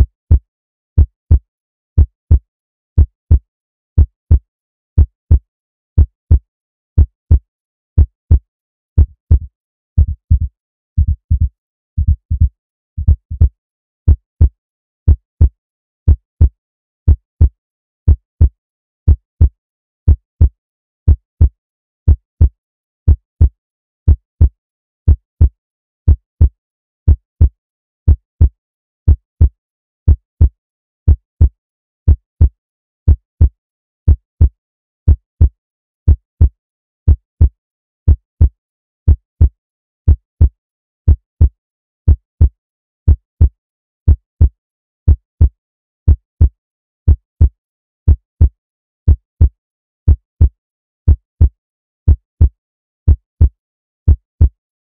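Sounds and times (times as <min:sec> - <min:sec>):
heartbeat thumps: 0:09.0 - 0:13.5.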